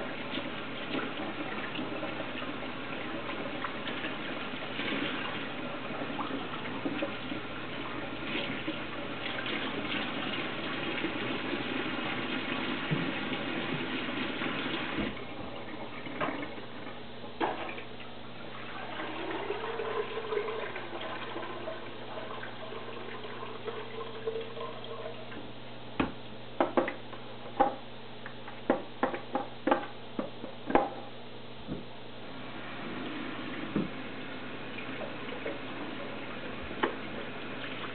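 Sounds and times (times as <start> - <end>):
kitchen tap running into sink: 0.0 - 16.8, 17.4 - 25.4, 32.4 - 37.9.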